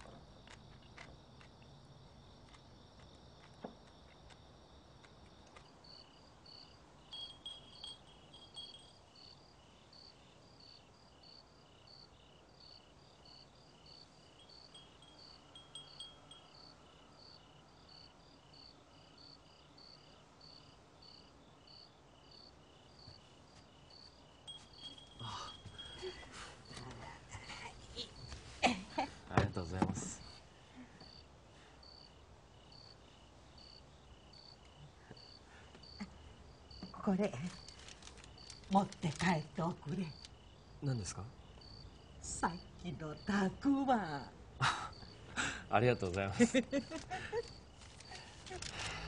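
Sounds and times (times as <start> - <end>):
insects chirping: 0.0 - 49.0
wind chime tinkling: 7.1 - 9.2, 14.4 - 16.7, 24.5 - 26.6.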